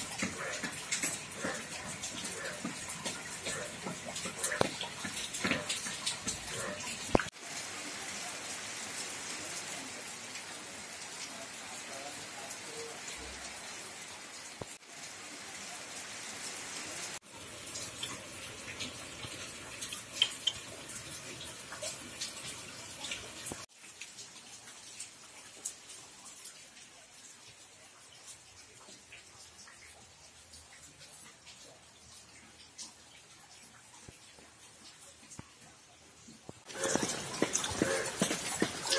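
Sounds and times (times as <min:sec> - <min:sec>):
rain on wet concrete: 0:00.0 - 0:38.9
water drops splashing: 0:36.7 - 0:38.9.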